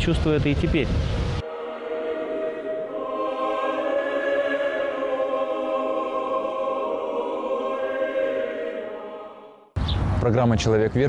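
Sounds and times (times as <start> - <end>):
church choir singing held chords: 1.4 - 9.8.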